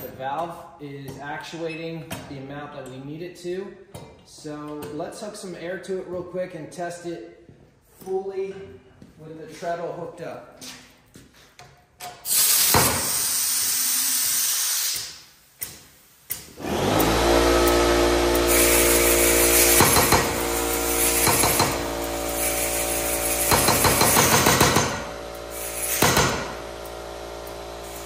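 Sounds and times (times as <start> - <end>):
air compressor humming: 12.2 - 15.3, 16.5 - 28.0
compressed air hissing: 12.2 - 16.2, 18.3 - 26.8, 27.4 - 28.0
power hammer knocking: 19.6 - 20.5, 21.2 - 21.9, 23.4 - 25.2, 25.9 - 27.0.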